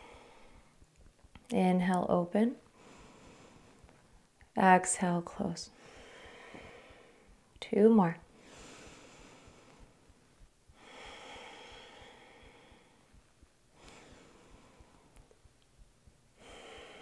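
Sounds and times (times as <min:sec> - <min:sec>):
woman breathing slowly: 0:00.0 - 0:00.9, 0:02.6 - 0:04.3, 0:05.6 - 0:07.6, 0:08.2 - 0:17.0.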